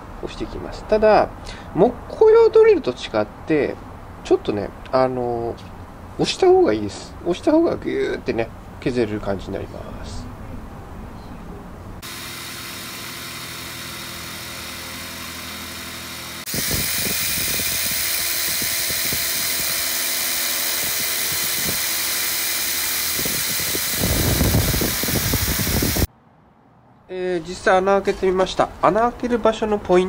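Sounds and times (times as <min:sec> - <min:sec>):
impact driver drilling steel: 0:12.0 - 0:26.1.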